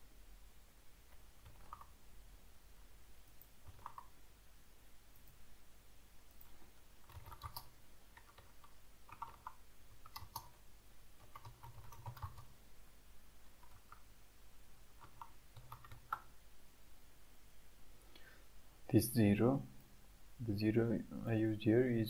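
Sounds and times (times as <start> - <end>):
faint typing on keyboard: 1.1 - 2.0, 3.2 - 4.2, 6.3 - 10.6, 11.2 - 12.6, 13.4 - 14.2, 14.9 - 16.4.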